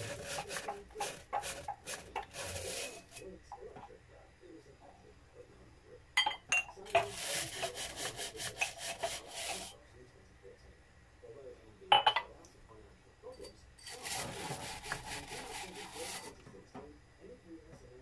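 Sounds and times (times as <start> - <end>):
brush scrubbing inside a glass: 0.0 - 3.3, 6.8 - 9.8, 13.4 - 16.4.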